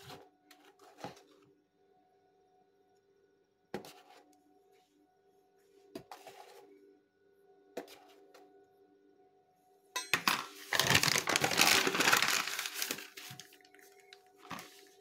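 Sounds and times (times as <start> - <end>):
flour bag crinkling and rustling: 10.6 - 15.0.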